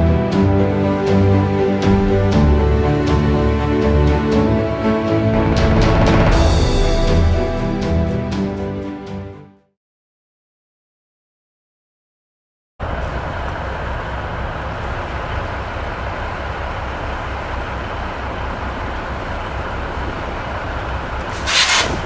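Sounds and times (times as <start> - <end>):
diesel locomotive engine idling: 12.8 - 22.0.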